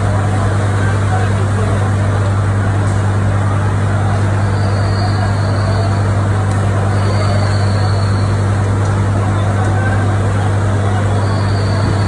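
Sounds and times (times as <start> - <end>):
fire truck engines droning: 0.0 - 12.0
noisy background: 0.0 - 12.0.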